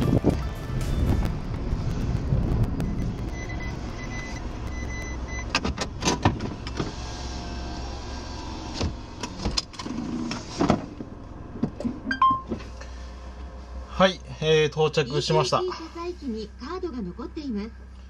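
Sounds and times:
car engine and road hum: 0.0 - 18.0
high tone beeping: 2.8 - 5.5, 12.1 - 12.5.

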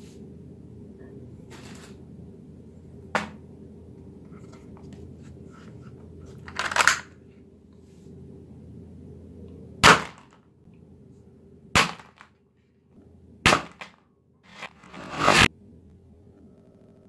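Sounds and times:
toy dart gun shots: 9.8 - 10.3, 13.5 - 14.0.

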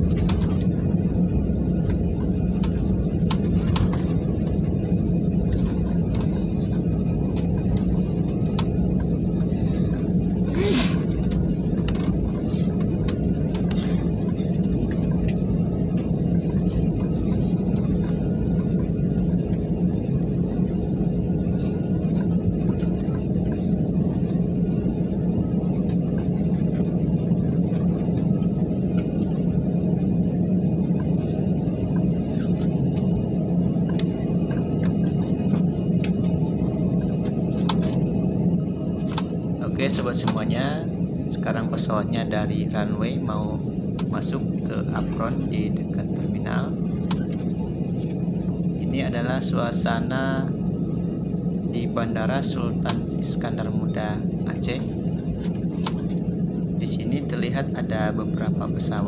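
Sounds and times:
aircraft cabin rumble: 0.0 - 59.0.

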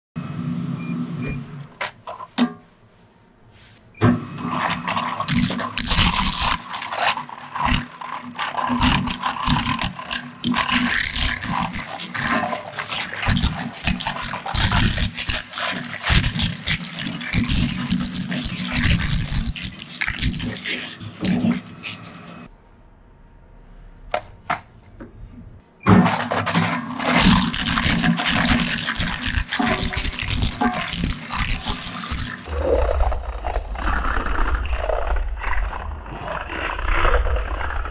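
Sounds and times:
shredder machine hum: 4.3 - 22.5
plastic cracking and crunching: 4.5 - 22.1, 25.9 - 37.9.

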